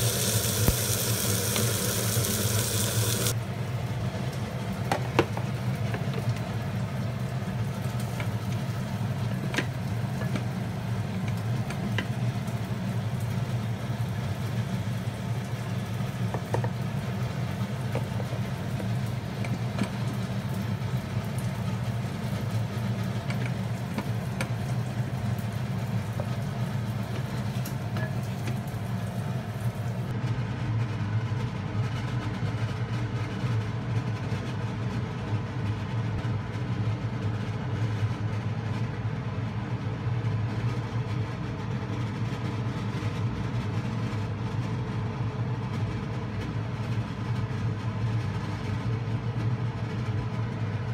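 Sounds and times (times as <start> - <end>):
low machine hum: 0.0 - 31.2.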